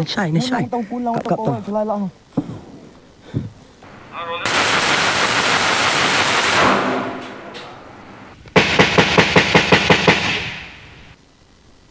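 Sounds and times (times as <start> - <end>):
automatic rifle fire: 4.4 - 7.8, 8.5 - 11.1.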